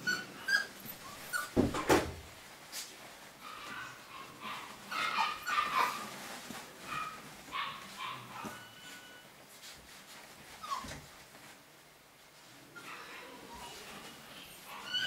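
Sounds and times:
puppy whining: 0:00.0 - 0:01.6, 0:03.5 - 0:09.4, 0:10.3 - 0:11.6, 0:12.7 - 0:15.0
puppies yipping and whimpering: 0:00.0 - 0:01.7, 0:03.4 - 0:09.3, 0:10.5 - 0:11.3, 0:12.7 - 0:15.0.

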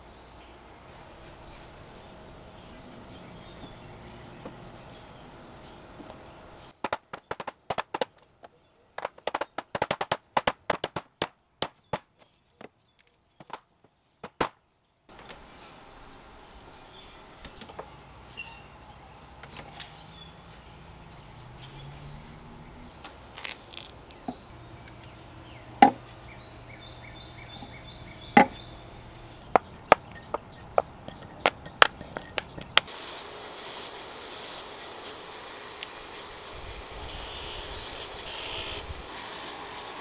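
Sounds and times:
knocks and taps on wooden chair: 0:06.8 - 0:08.2, 0:09.0 - 0:11.1
bench grinder wire wheel hissing: 0:31.1 - 0:40.0.

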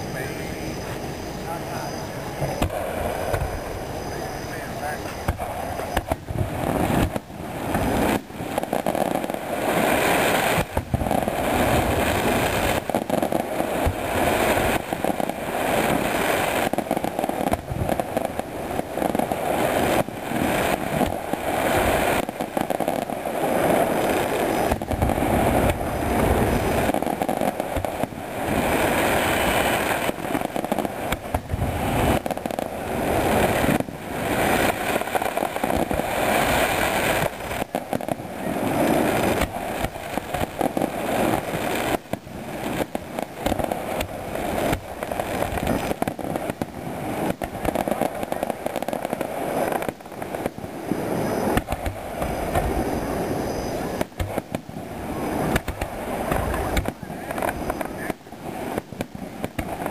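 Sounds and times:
fireworks bursting: 0:00.0 - 0:59.9.

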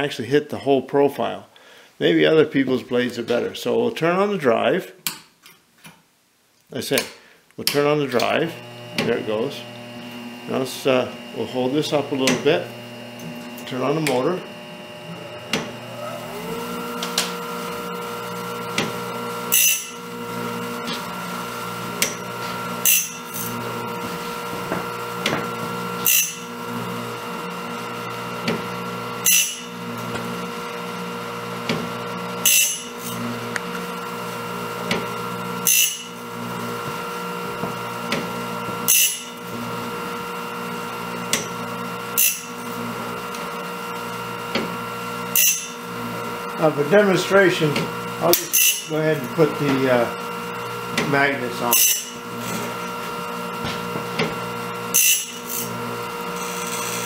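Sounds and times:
grinding motor whine: 0:08.0 - 0:57.0
stone grinding blade tooth: 0:19.5 - 0:20.0, 0:22.8 - 0:23.6, 0:26.0 - 0:26.5, 0:29.2 - 0:29.7, 0:32.4 - 0:33.2, 0:35.6 - 0:36.2, 0:38.9 - 0:39.3, 0:42.2 - 0:42.6, 0:45.3 - 0:45.8, 0:48.3 - 0:48.9, 0:51.7 - 0:52.8, 0:54.9 - 0:57.0.

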